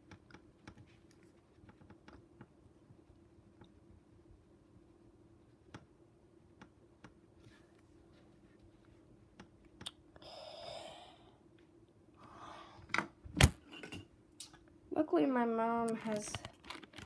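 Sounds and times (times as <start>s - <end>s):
soft rustle: 7.3s - 9.2s.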